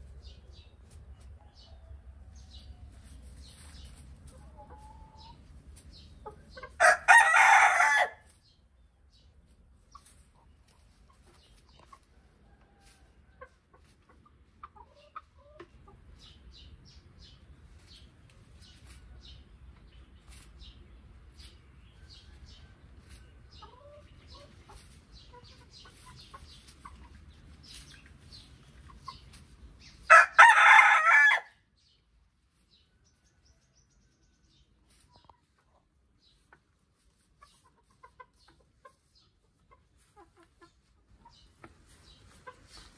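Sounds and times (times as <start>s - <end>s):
chickens clucking: 0.0s - 31.0s, 31.9s - 42.9s
rooster crowing: 6.8s - 8.2s, 30.1s - 31.5s.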